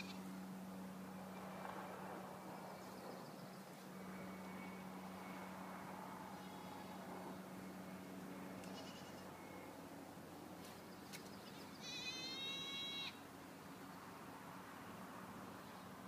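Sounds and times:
goat bleating: 11.8s - 13.2s.

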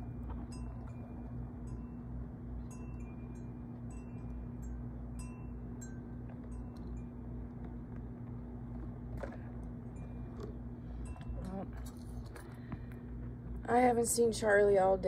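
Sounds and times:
wind chimes tinkling: 0.0s - 7.3s
steady low hum: 0.0s - 15.0s.

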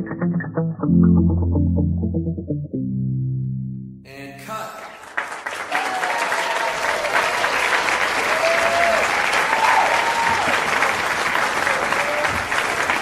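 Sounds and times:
crowd applauding and cheering: 4.8s - 13.0s
people whooping: 5.7s - 10.9s, 11.5s - 13.0s.

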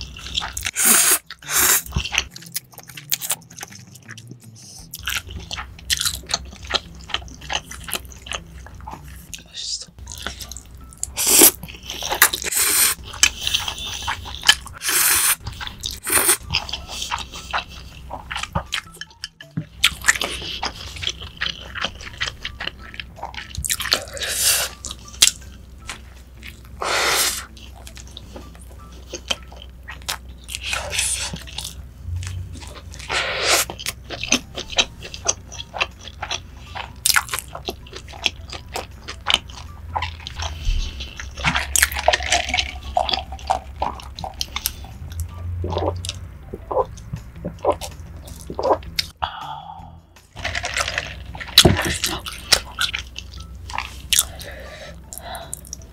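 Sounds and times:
chewing: 0.0s - 49.2s, 50.4s - 55.9s
slurping noodles: 0.7s - 2.0s, 11.2s - 16.4s, 26.8s - 27.5s, 33.0s - 33.8s.

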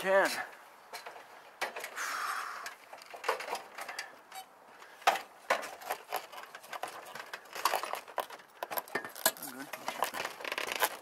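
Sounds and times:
tarp rustling: 9.1s - 11.0s.

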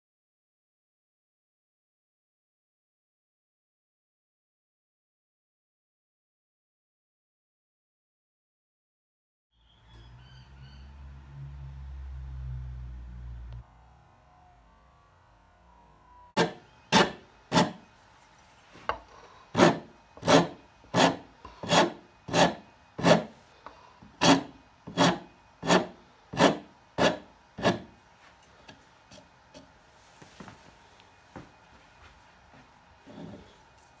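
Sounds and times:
wood rasp filing: 16.4s - 17.8s, 19.5s - 23.4s, 24.0s - 28.0s.

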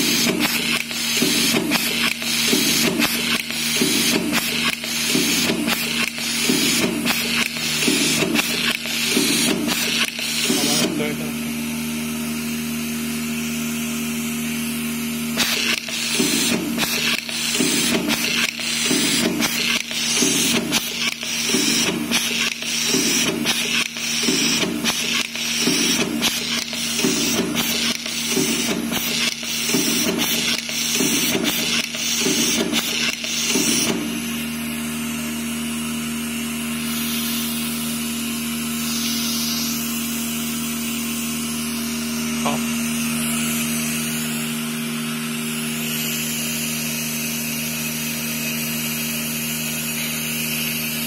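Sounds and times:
machine feeder hum with hiss: 0.0s - 51.0s
sharp mechanical clack: 0.2s - 10.9s, 15.4s - 34.1s.

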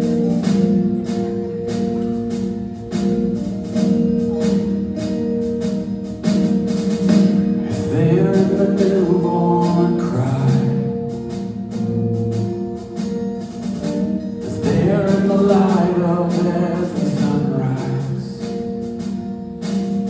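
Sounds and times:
rock-pop ballad on guitars and drums: 0.0s - 20.0s
man singing: 7.6s - 11.0s, 14.4s - 18.6s.

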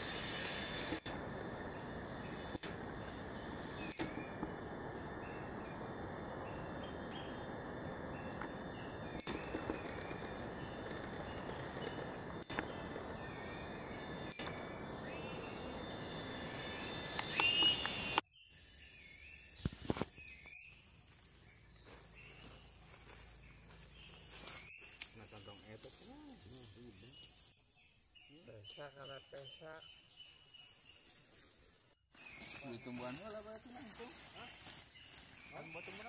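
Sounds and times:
high thin insect drone: 0.0s - 18.9s.

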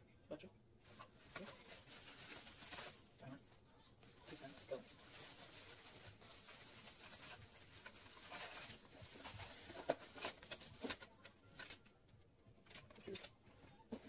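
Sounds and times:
packing wrap rustling and crinkling: 0.8s - 11.9s, 12.6s - 14.0s.

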